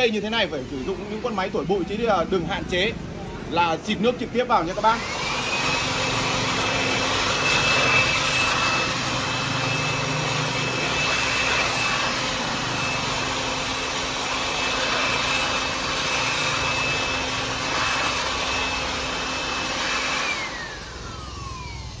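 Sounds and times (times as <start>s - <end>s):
electric blower whining: 4.5s - 22.0s.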